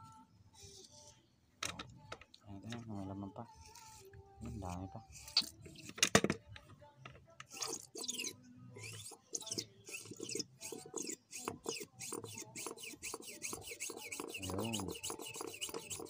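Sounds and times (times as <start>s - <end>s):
shock absorber pumping strokes: 7.5s - 16.0s.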